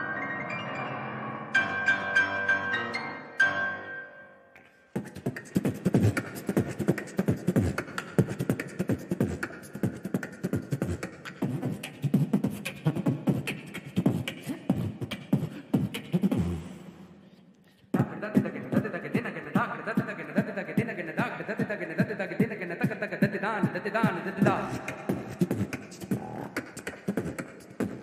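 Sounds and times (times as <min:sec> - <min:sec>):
orchestra music: 0:00.0 - 0:04.4
vocal beatboxing: 0:05.0 - 0:28.0.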